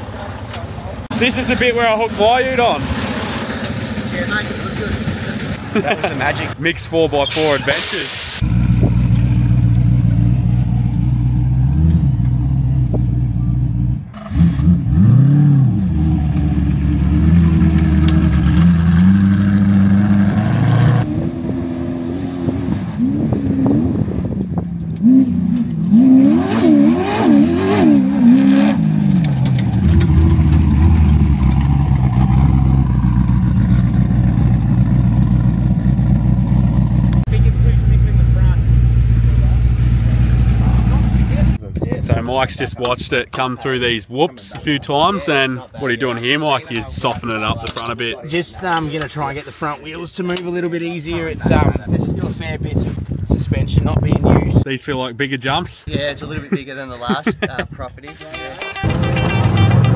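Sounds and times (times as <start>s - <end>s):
off-road vehicle engine revving: 8.4s - 41.6s.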